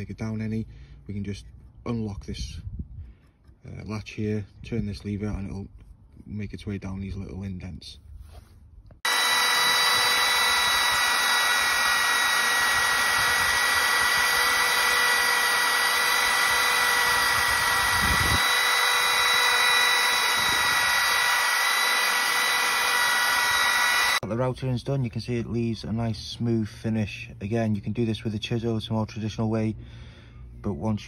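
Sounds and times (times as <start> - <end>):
palm router whining: 9.0 - 24.3.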